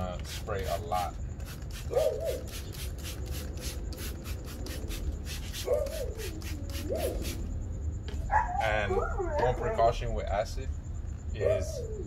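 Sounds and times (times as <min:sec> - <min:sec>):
spray bottle hissing sprays: 0:00.0 - 0:07.5
dog whining: 0:01.9 - 0:02.5, 0:05.6 - 0:07.4, 0:08.2 - 0:10.1, 0:11.4 - 0:12.0.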